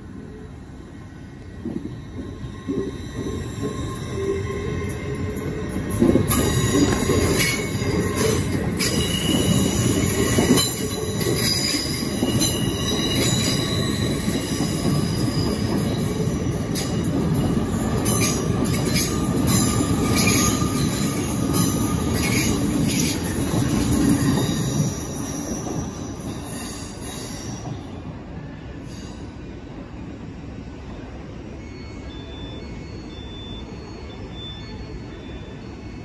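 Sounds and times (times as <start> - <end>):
train wheels rumbling on rails: 1.3 - 30.0.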